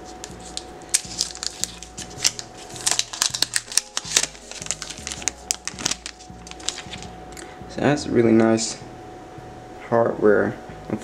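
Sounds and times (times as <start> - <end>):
plastic film being peeled: 0.0 - 7.1.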